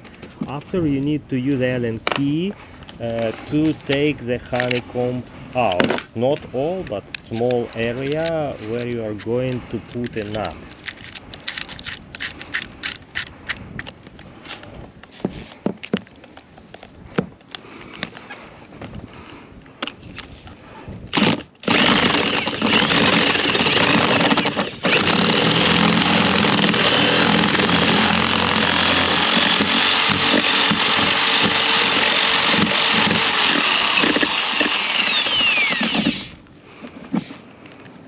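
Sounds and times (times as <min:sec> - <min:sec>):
key scraping fiberglass core: 0:07.4 - 0:13.9
cordless drill whining: 0:21.1 - 0:36.4.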